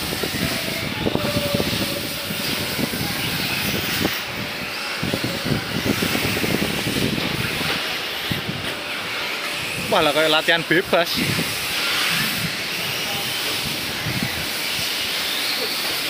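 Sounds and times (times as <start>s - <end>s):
hiss of rc car tyres: 0.0s - 4.1s, 11.0s - 16.0s.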